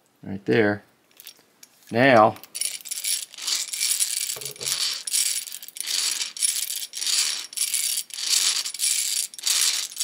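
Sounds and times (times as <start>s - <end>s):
hand drill ratchet clicking: 2.5s - 10.0s.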